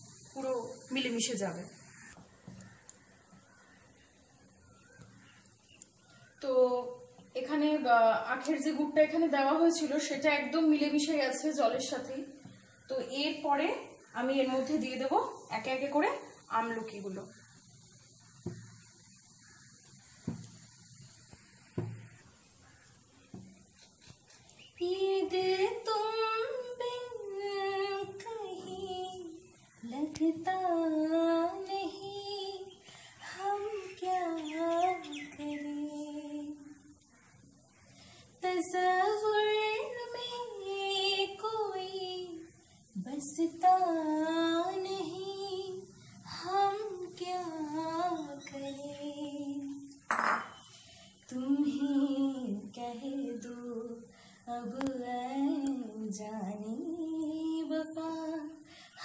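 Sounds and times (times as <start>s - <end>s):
woman singing unaccompanied: 0.0s - 1.7s, 6.0s - 17.3s, 24.5s - 37.1s, 38.2s - 59.0s.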